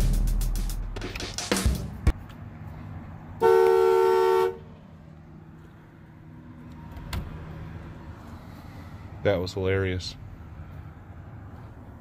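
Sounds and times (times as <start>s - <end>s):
two-note car horn blare: 3.4s - 4.7s.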